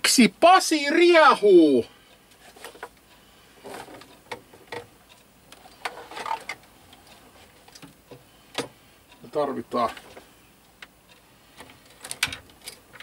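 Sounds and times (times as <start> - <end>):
hands rummaging among cables: 5.6 - 6.6.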